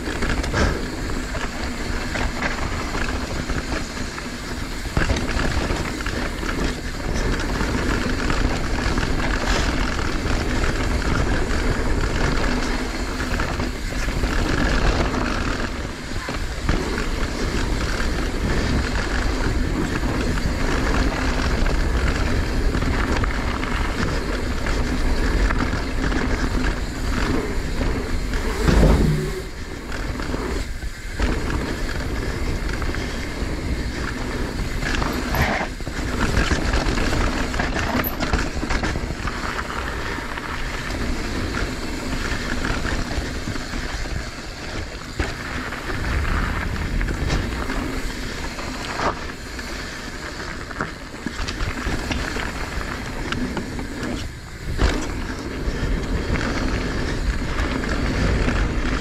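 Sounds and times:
bike tyres chattering over dirt: 0.0s - 59.0s
wind rushing on microphone: 0.0s - 59.0s
loud thump: 28.6s - 29.5s.

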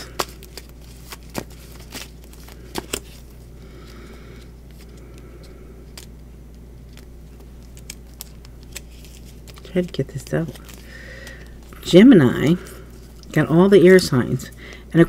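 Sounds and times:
cards clicking: 0.0s - 3.2s, 4.8s - 11.7s
cards rustling: 0.0s - 14.8s
low steady hum: 0.0s - 15.0s.

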